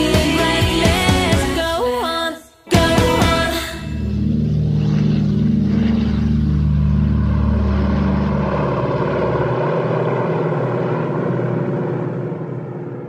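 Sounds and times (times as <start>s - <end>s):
held music chord: 2.7s - 7.8s
deep bass: 2.7s - 13.0s
propeller plane engines: 3.0s - 13.0s.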